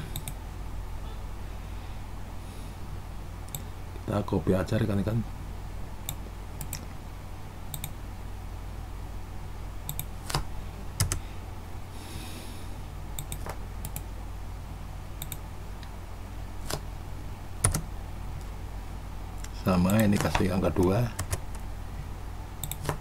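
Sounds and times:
steady low hum: 0:00.0 - 0:23.0
mouse and keyboard clicking: 0:07.7 - 0:08.0, 0:13.2 - 0:14.1, 0:16.6 - 0:16.8, 0:22.6 - 0:23.0.

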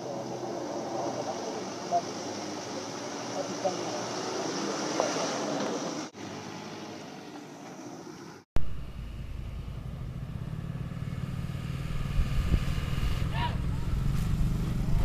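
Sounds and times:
truck engine running: 0:08.6 - 0:15.0.

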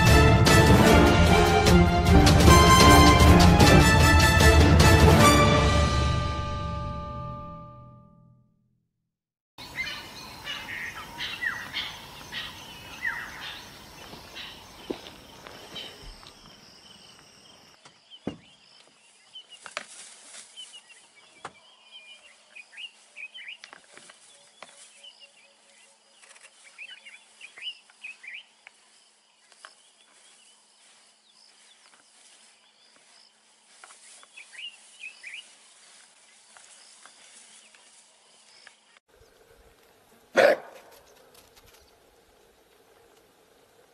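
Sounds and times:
small birds chirping: 0:09.6 - 0:40.3.

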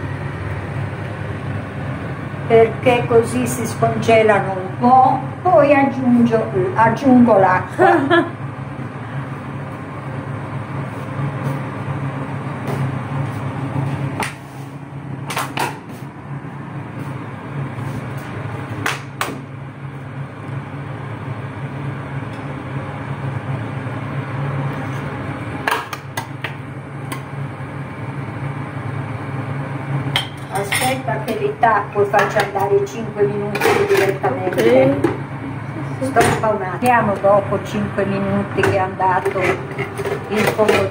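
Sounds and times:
low kitchen hum: 0:00.0 - 0:40.9.

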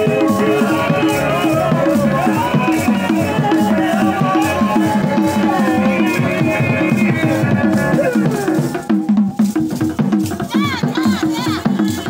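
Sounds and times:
group singing: 0:00.0 - 0:09.5
hand drum beat: 0:00.0 - 0:12.0
rattles shaking: 0:00.0 - 0:12.0.

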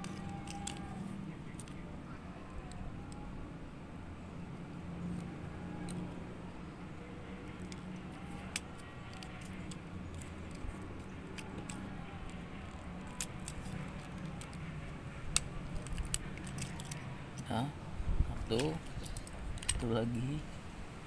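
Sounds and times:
wind rumble on microphone: 0:17.9 - 0:19.9.

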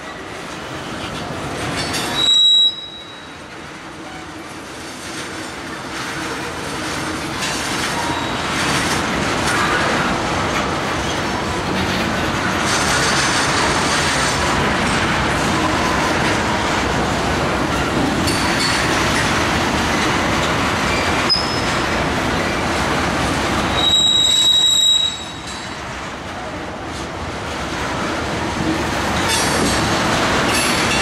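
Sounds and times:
train wheels rumbling on rails: 0:00.0 - 0:31.0
high-pitched wheel squeal: 0:02.0 - 0:03.3, 0:20.9 - 0:21.7, 0:23.7 - 0:25.5.

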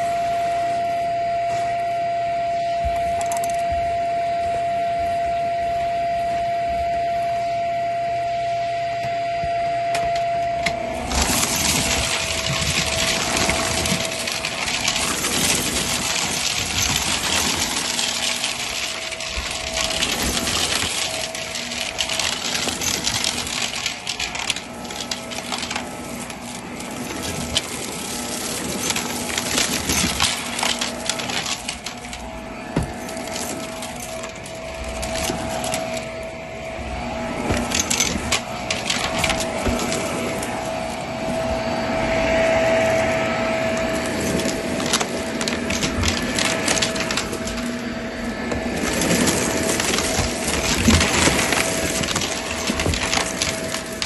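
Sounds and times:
vacuum cleaner motor whining: 0:00.0 - 0:54.0
debris rattling through vacuum head: 0:10.8 - 0:54.0.

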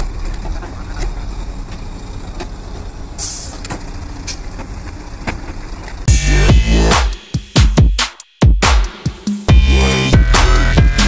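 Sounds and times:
diesel truck engine running: 0:00.0 - 0:06.9
air hiss: 0:03.2 - 0:03.6
loud electronic music: 0:06.1 - 0:11.0.

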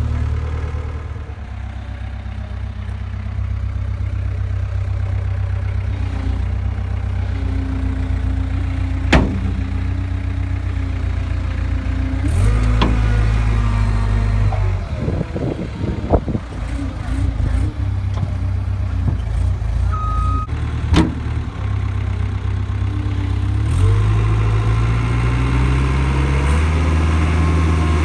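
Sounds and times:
diesel engine running: 0:00.0 - 0:28.0
sharp knock: 0:09.1 - 0:09.8.

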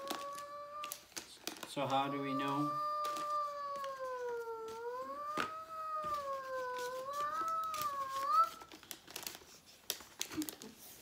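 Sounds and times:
girl singing long high note: 0:02.1 - 0:08.6.

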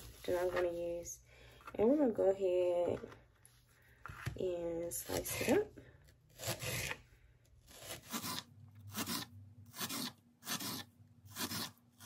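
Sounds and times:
knife slicing onion: 0:06.3 - 0:07.0, 0:07.7 - 0:12.0.

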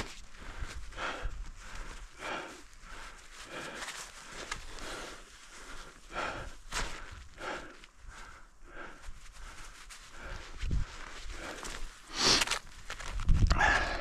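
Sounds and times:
person breathing hard: 0:00.0 - 0:12.7, 0:13.5 - 0:14.0.

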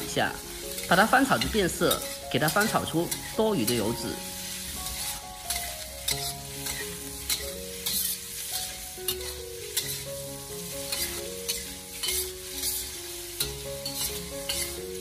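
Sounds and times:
metal spatula scraping wok: 0:00.0 - 0:15.0
pork sizzling in hot oil: 0:00.0 - 0:15.0.

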